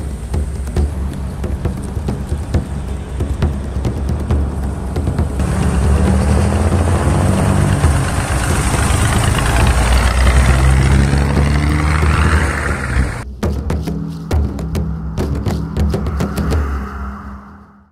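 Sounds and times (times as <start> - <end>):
diesel engine idling: 0.0 - 13.2
even rushing noise: 0.0 - 13.3, 14.1 - 17.9.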